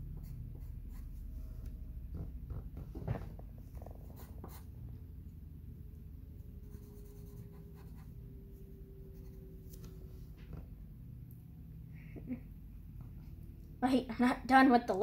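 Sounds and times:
pencil scratching on paper: 0:00.1 - 0:01.6, 0:03.8 - 0:04.7, 0:06.6 - 0:08.2.

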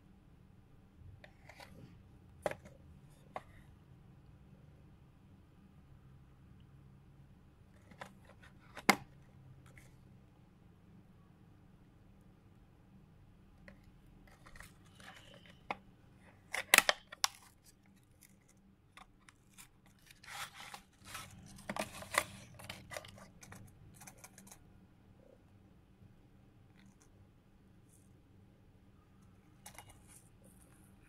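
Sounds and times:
cardboard and foil rustling: 0:19.5 - 0:23.1.

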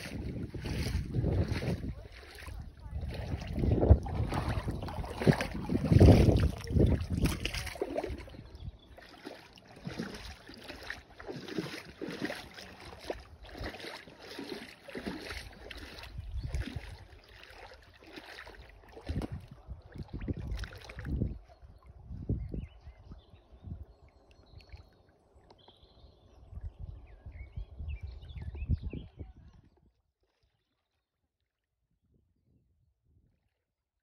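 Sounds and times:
small waves lapping and splashing: 0:00.0 - 0:21.9
wind buffeting microphone: 0:00.0 - 0:24.0, 0:26.3 - 0:29.9.

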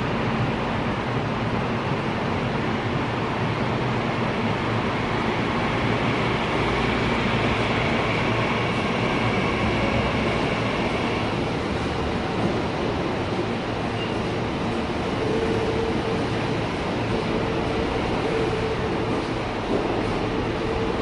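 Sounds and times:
electric train rumbling past: 0:00.0 - 0:21.0
faint high whine: 0:13.6 - 0:21.0.

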